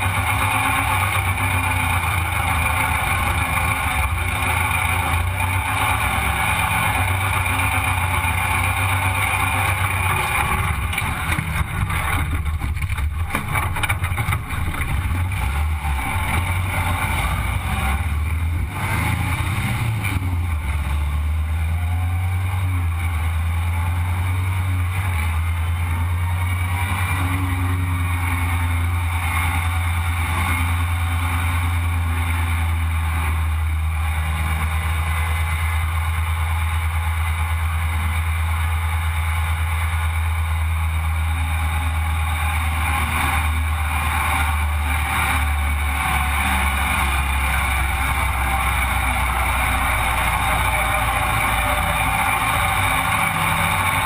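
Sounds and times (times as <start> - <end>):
dune buggy engine drone: 0.0 - 54.0.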